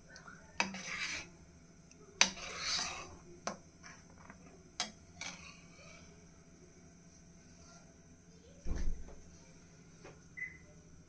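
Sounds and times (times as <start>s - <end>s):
ladle scraping a steel pan: 0.6s - 1.3s, 2.2s - 3.2s, 5.2s - 6.0s.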